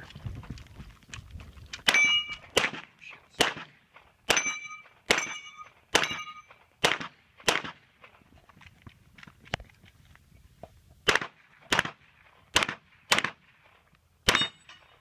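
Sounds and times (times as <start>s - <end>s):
pistol shots: 1.8s - 8.0s, 11.0s - 13.6s, 14.2s - 14.9s
steel targets clanging: 1.9s - 2.6s, 4.3s - 6.6s, 14.3s - 15.0s.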